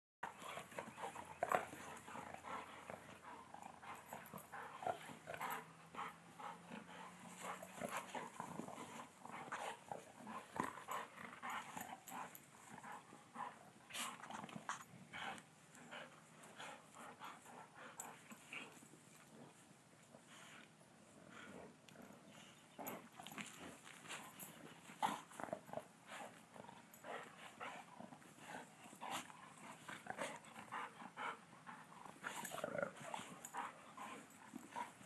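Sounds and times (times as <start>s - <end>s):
dogs play growling: 0.2s - 35.0s.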